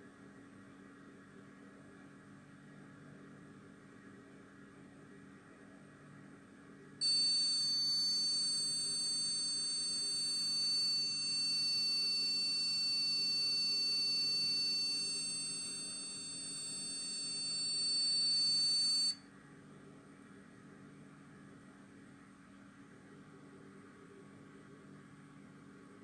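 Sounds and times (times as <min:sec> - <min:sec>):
shrill buzzer tone: 0:07.0 - 0:19.2.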